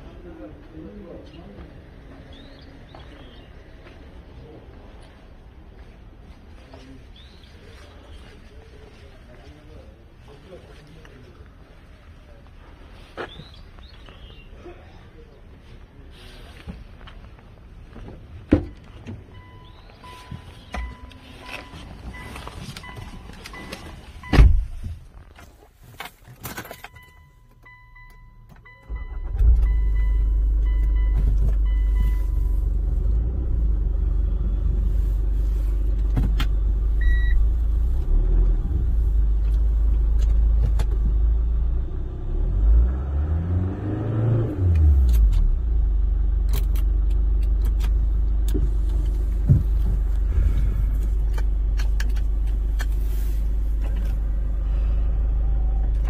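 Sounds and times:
car engine idling and revving: 0:15.9 - 0:25.4, 0:26.6 - 0:56.0
dashboard warning chime: 0:18.7 - 0:24.4, 0:26.6 - 0:32.8, 0:37.0 - 0:37.4
car door thump: 0:24.3 - 0:24.8, 0:49.4 - 0:50.7.

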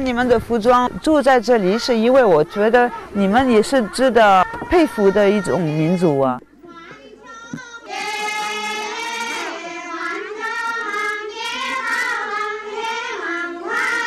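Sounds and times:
children singing slow melody: 0:03.0 - 0:06.0, 0:06.6 - 0:14.0.

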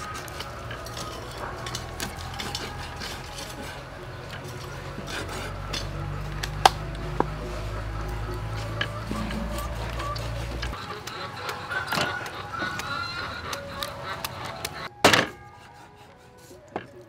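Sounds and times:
cleaver crackling through fish: 0:00.0 - 0:14.9.

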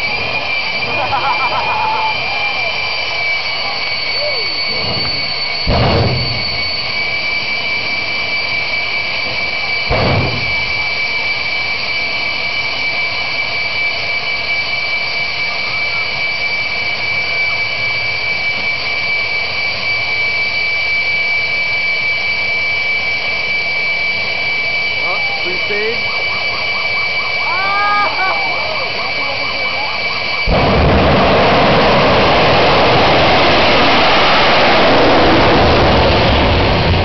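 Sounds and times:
loud jet burst: 0:00.0 - 0:11.7, 0:25.2 - 0:37.0
jet turbine high whine: 0:00.0 - 0:37.0.

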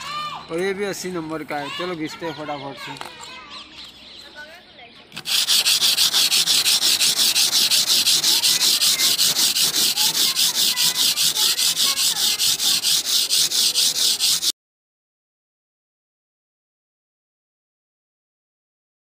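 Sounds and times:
sandpaper rasping on filler: 0:05.2 - 0:14.5.

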